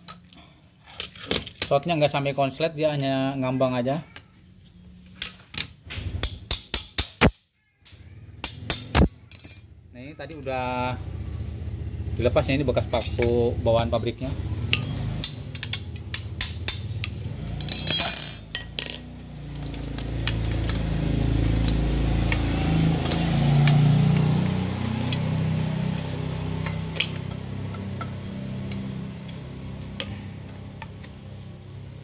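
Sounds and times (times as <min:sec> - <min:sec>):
metal parts clinking on tile floor: 0:00.9 - 0:03.2, 0:09.2 - 0:09.8, 0:14.7 - 0:23.3.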